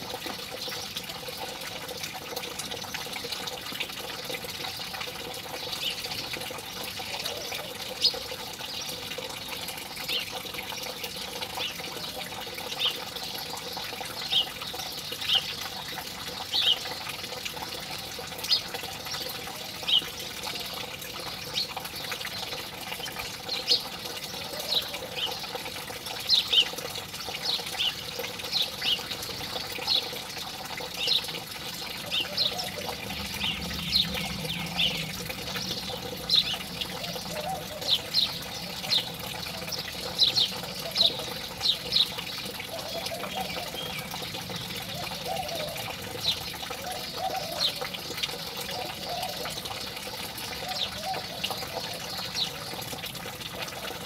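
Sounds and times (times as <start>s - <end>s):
running water: 0.0s - 54.0s
sparrows chirping: 9.9s - 17.0s, 18.4s - 25.5s, 26.2s - 49.5s.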